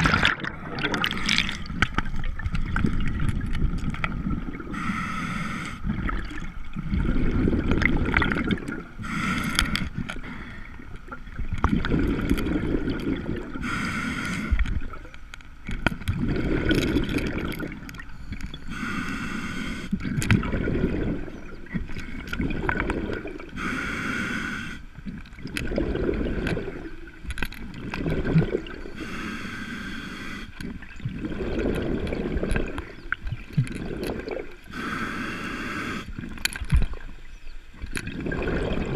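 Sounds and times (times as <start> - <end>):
exhaled bubbles rushing: 0.0 - 4.7, 5.8 - 9.0, 11.4 - 13.6, 16.1 - 18.0, 20.0 - 23.5, 25.4 - 27.1, 27.8 - 28.9, 30.6 - 34.6, 38.0 - 38.9
hissing regulator inhale: 4.7 - 5.9, 9.0 - 10.8, 13.6 - 14.7, 18.2 - 20.0, 22.9 - 24.9, 28.7 - 30.6, 34.6 - 36.2.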